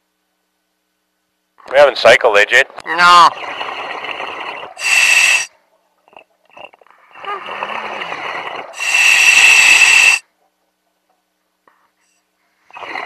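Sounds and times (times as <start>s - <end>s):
radio static hiss with whistle: 1.7s - 5.5s, 8.8s - 10.2s.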